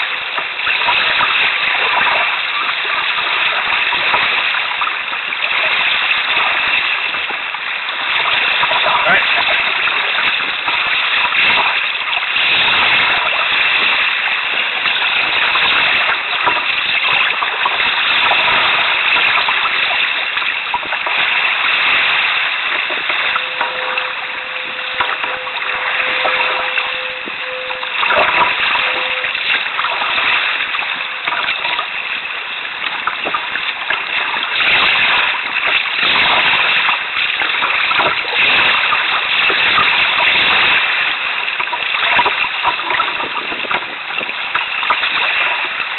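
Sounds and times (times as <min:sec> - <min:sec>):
seawater splashing around canoe: 0:00.0 - 0:45.9
faint steady tone: 0:22.0 - 0:32.6.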